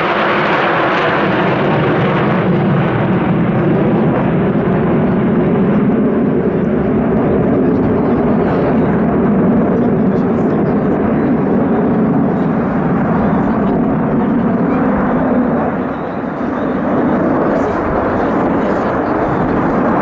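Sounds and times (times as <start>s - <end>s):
jet fighters flying over: 0.0s - 20.0s.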